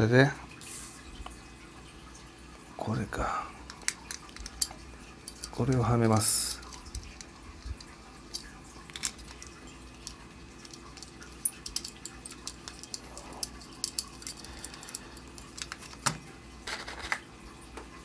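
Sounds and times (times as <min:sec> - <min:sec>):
metal clock parts clicking: 0:03.7 - 0:16.1.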